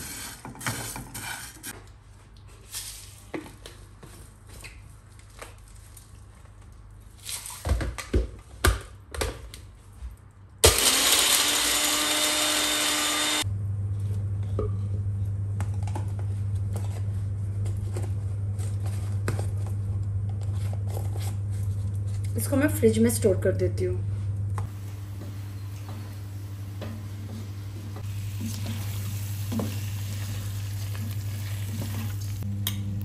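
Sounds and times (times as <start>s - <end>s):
blender grinding spices: 10.6s - 13.5s
steady low hum: 13.4s - 30.0s.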